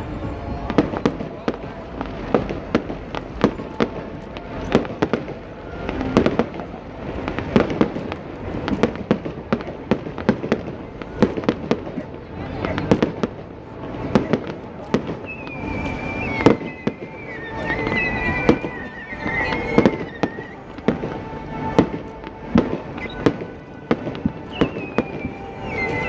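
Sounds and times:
fireworks bursting bangs: 0.0 - 26.0
wavering high whistle: 15.2 - 23.6, 24.2 - 26.0.

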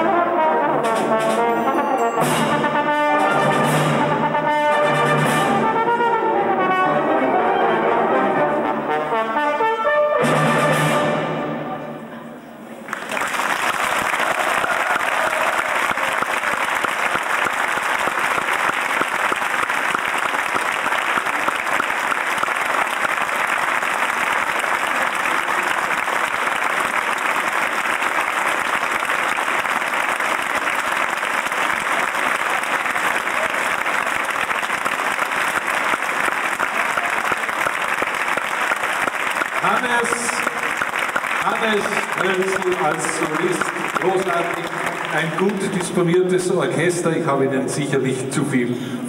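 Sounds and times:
music: 0.0 - 12.7, 39.6 - 47.0
audience applauding: 12.8 - 46.6.

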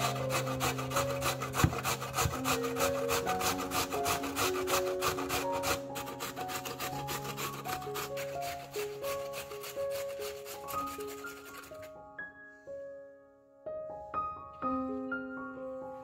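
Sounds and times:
potato rasping on grater: 0.0 - 11.9
soft background music: 0.0 - 16.0.

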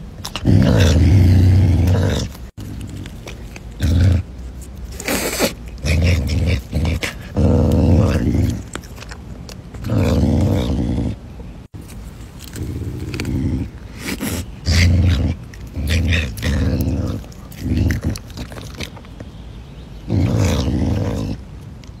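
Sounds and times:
wild cat growling: 0.2 - 4.3, 4.9 - 9.1, 9.8 - 11.2, 12.5 - 18.9, 20.1 - 21.4.

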